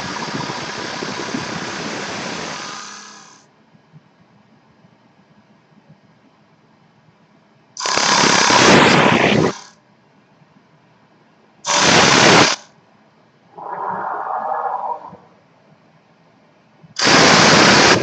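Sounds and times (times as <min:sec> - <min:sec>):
lathe cutting wood hiss: 0:00.0 - 0:03.4.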